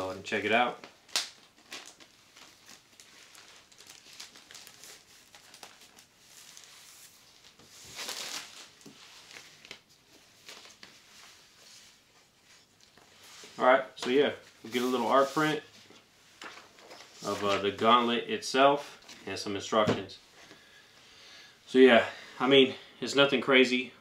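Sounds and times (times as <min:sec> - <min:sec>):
packaging rustling and crinkling: 0:00.8 - 0:17.9.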